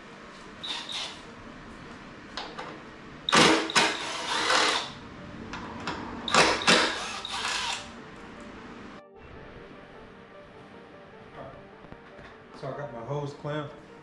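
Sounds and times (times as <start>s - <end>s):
cordless power tool bursts: 3.3s - 5.0s, 6.3s - 7.9s.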